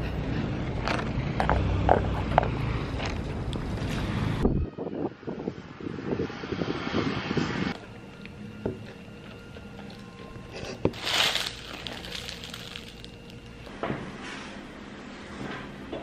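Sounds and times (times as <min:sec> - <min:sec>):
wind buffeting microphone: 0:04.4 - 0:07.8
plastic snack bag crinkling: 0:11.0 - 0:13.4.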